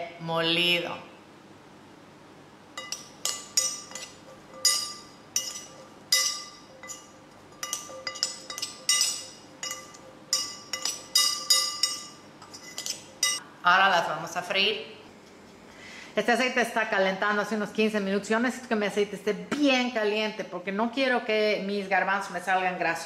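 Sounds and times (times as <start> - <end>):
metal spoon clinking glass bowl: 2.8 - 13.4.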